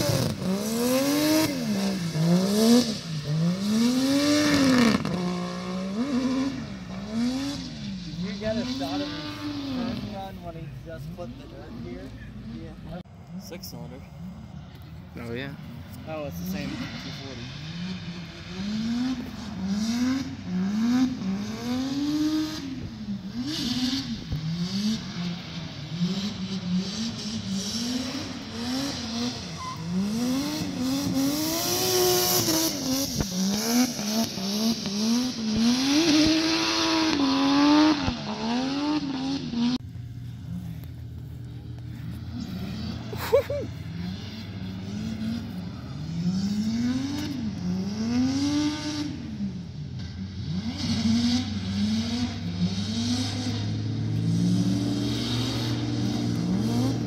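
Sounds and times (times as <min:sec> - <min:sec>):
car engine revving: 0:00.0 - 0:57.0
tyre squeal: 0:29.5 - 0:30.0.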